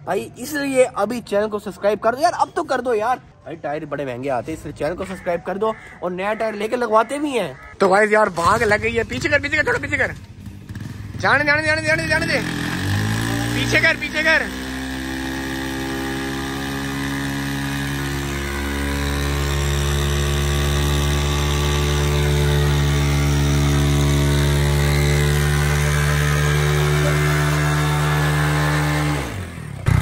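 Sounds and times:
motorcycle engine revving: 0:08.3 - 0:30.0.

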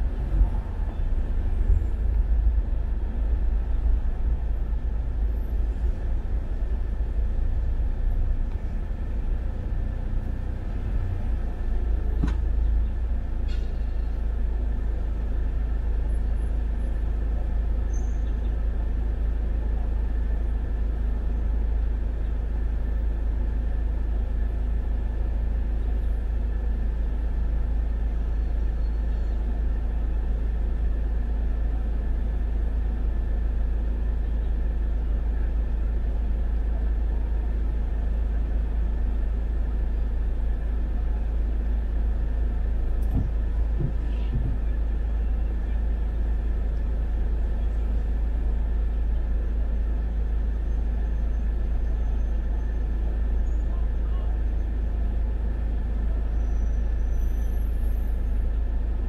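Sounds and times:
car cabin rumble: 0:42.6 - 0:48.2.

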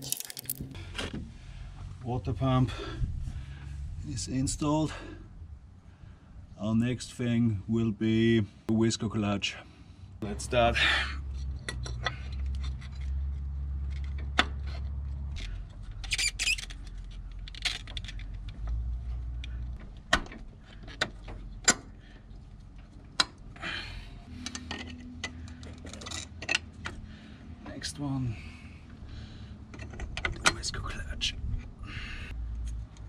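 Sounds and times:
metal tools clinking: 0:00.0 - 0:00.6.

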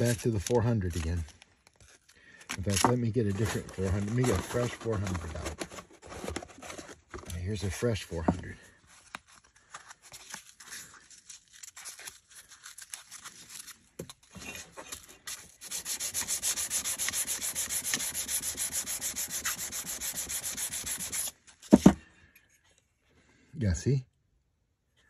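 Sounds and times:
sandpaper scrubbing steel blade: 0:15.3 - 0:21.4.

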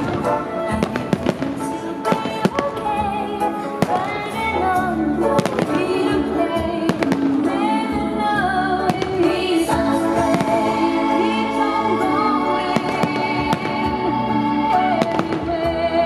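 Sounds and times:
loud music: 0:00.0 - 0:16.0
fireworks bangs: 0:03.7 - 0:04.6, 0:12.7 - 0:14.0.

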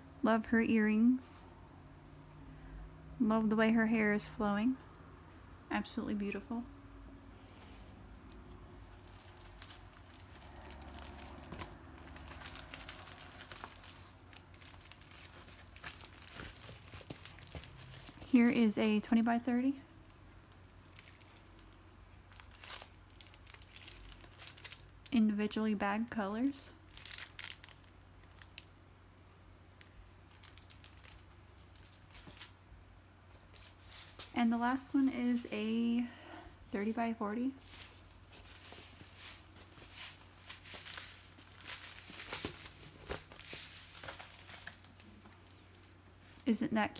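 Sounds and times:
plastic bags rustling and clicking: 0:07.5 - 0:25.1, 0:26.9 - 0:28.7, 0:29.8 - 0:32.6, 0:37.6 - 0:46.5
plastic packaging crinkling: 0:07.5 - 0:25.5, 0:26.8 - 0:28.7, 0:29.8 - 0:32.6, 0:37.6 - 0:46.6.

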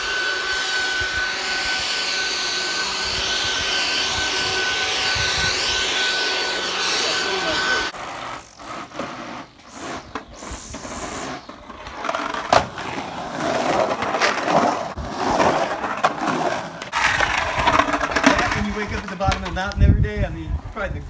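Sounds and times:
skateboard wheels rolling on concrete: 0:04.5 - 0:21.0
irregular scraping: 0:05.6 - 0:19.7
skateboard clack: 0:11.5 - 0:19.6.

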